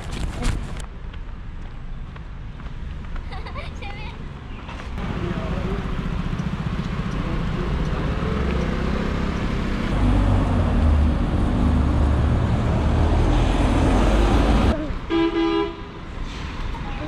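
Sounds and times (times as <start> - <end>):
street traffic: 0.0 - 17.0
bus engine low hum: 4.7 - 15.1.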